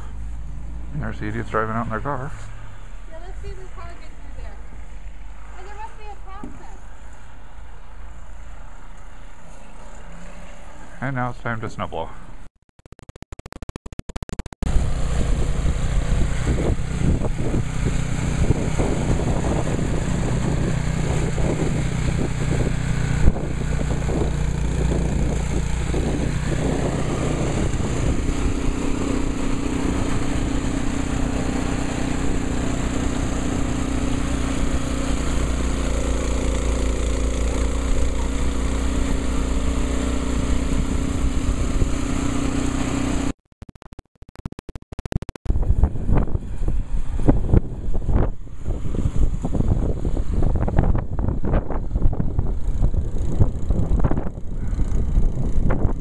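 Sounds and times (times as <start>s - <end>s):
snowblower engine running: 14.2s - 43.3s, 48.4s - 56.0s.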